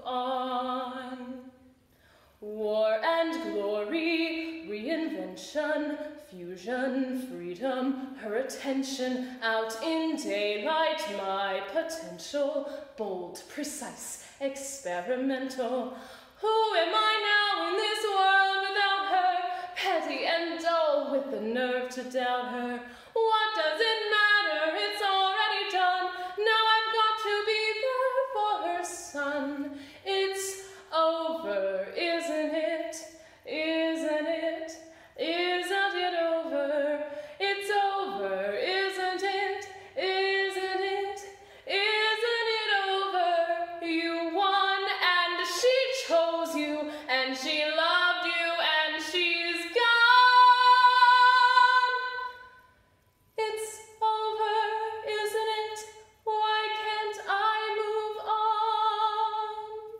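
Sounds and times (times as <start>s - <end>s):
woman singing a cappella: 0.0s - 59.9s.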